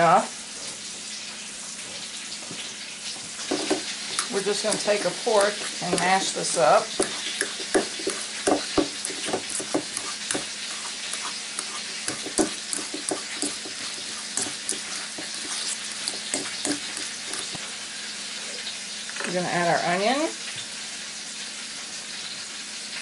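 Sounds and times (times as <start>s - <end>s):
fork scraping metal bowl: 3.4s - 17.7s.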